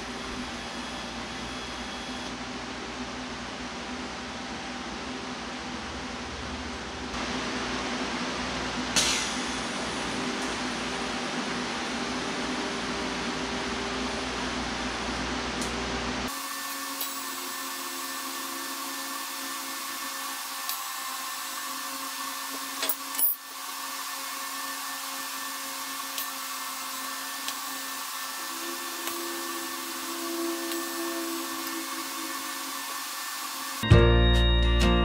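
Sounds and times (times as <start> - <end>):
welding arc hum and hiss: 0.0 - 33.8.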